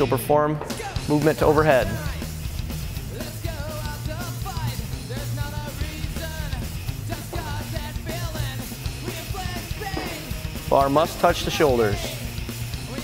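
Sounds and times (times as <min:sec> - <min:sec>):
rock music with singing: 0:00.0 - 0:13.0.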